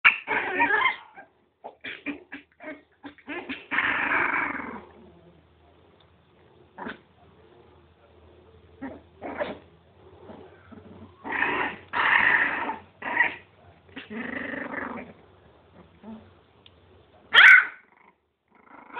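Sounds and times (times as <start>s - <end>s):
puppies growling and yipping: 0.0s - 5.3s, 8.8s - 15.2s, 17.4s - 18.9s.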